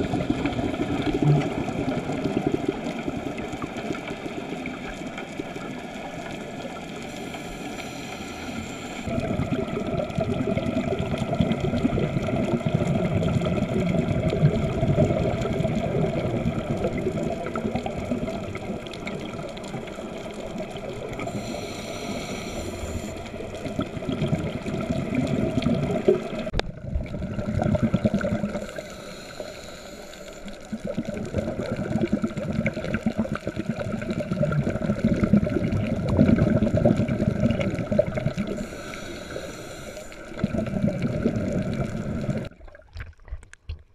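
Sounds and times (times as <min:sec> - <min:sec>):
muffled underwater rushing: 0:00.0 - 0:43.9
steady hum: 0:05.9 - 0:09.4, 0:21.0 - 0:26.7, 0:38.4 - 0:42.5.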